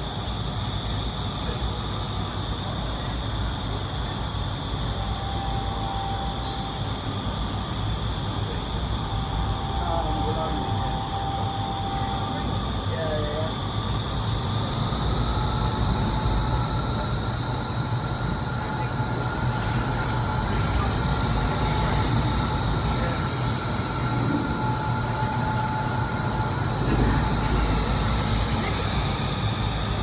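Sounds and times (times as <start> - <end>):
high-pitched fan whine: 0.0 - 30.0
wind tunnel air rushing: 13.6 - 30.0.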